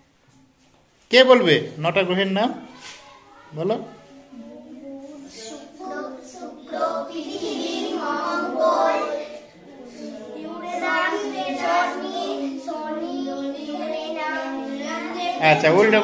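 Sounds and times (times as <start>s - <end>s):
children chanting together: 4.0s - 16.0s.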